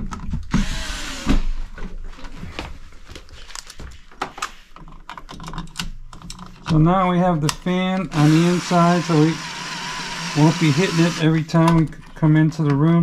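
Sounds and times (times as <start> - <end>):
cordless screwdriver running: 0.5 - 1.4, 8.1 - 11.3
small clicks and knocks: 3.4 - 6.8.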